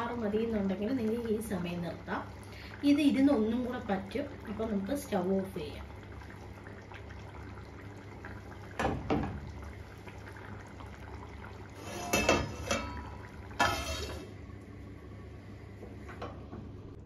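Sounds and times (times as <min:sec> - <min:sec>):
curry simmering in a pot: 0:00.0 - 0:16.1
metal lid clattering: 0:11.9 - 0:13.0.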